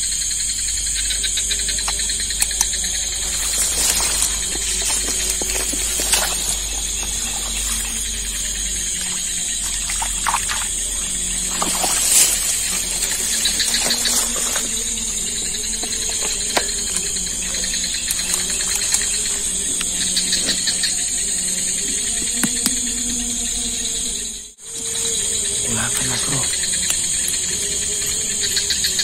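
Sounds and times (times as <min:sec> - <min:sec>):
night insects chorus: 0:00.0 - 0:29.0.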